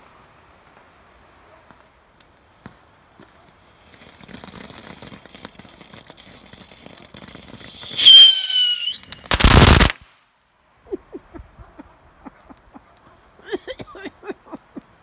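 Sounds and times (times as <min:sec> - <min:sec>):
firework sparks crackling: 0:00.0 - 0:10.2
firework whistle: 0:07.4 - 0:10.0.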